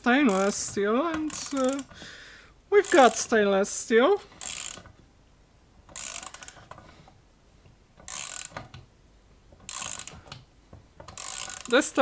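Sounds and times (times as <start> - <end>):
ratchet wrench clicking: 0.3 - 1.9, 2.8 - 3.3, 4.4 - 5.0, 5.9 - 6.8, 8.0 - 8.8, 9.6 - 10.4, 11.0 - 11.9.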